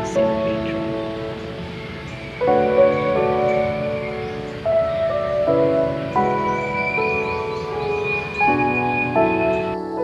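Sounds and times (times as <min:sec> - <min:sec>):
soft music of sustained chords: 0:00.0 - 0:10.0.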